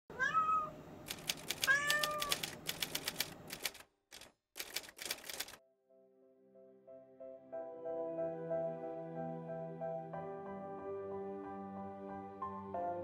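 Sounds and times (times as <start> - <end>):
cat meowing: 0.1 - 0.8, 1.6 - 2.4
typewriter keys clacking: 1.1 - 5.6
soft music: 5.6 - 13.0.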